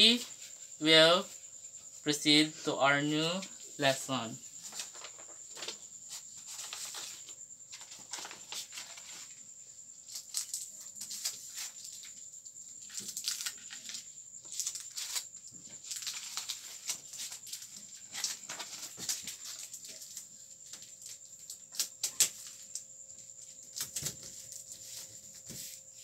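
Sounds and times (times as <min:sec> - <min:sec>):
paper card rustling: 0:04.6 - 0:05.8, 0:06.4 - 0:09.3.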